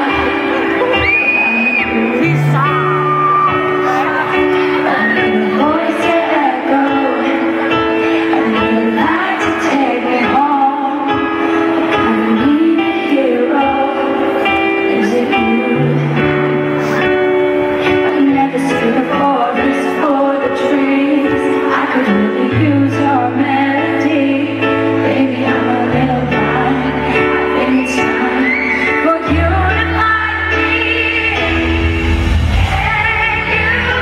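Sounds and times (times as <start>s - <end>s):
keyboard chords: 0.0s - 34.0s
woman singing a ballad: 0.0s - 34.0s
bass line: 31.2s - 34.0s.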